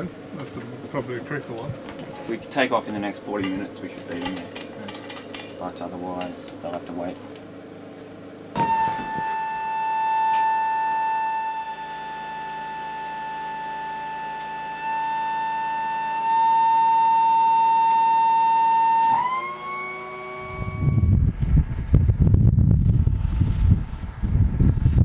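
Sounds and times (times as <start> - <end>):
low engine drone: 0.0 - 25.0
turboprop engine whine: 0.0 - 25.0.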